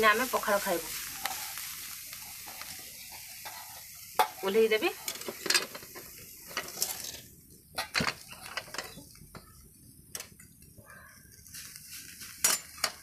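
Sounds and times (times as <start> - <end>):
metal pots and utensils clinking: 2.4 - 9.6, 12.4 - 13.0.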